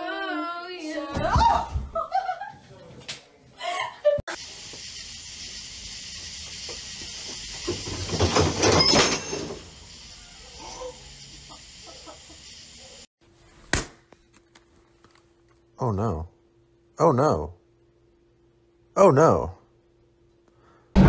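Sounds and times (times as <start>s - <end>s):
steady high hiss: 4.3s - 13.1s
bench tipping over: 7.7s - 9.7s.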